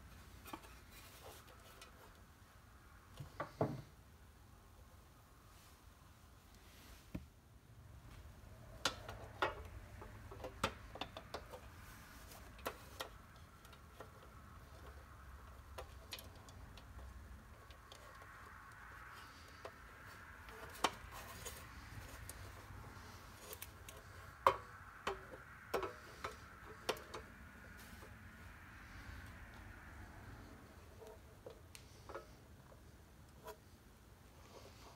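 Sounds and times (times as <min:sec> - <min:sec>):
clicks of toy truck parts: 0:08.8 - 0:11.7.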